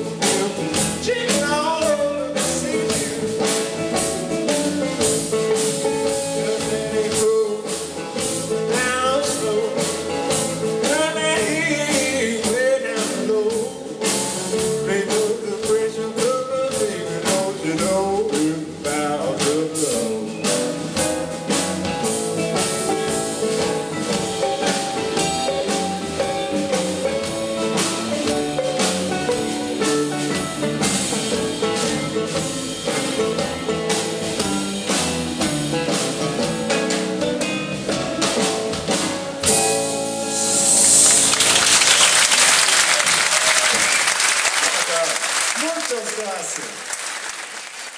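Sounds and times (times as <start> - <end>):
electric guitar playing blues: 0.0 - 41.9
drum kit with cymbals: 0.0 - 46.6
man singing: 0.1 - 3.9, 6.0 - 20.9.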